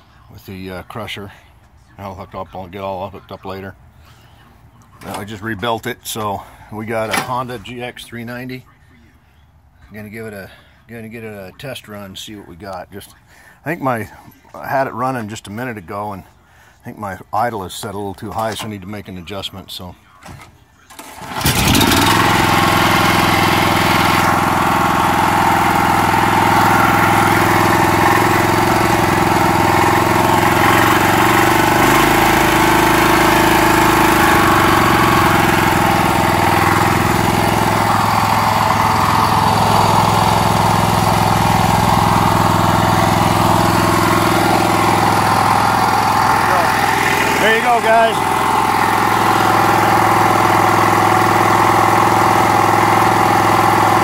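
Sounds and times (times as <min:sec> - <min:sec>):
engine running at fast idle: 0:20.9 - 0:54.0.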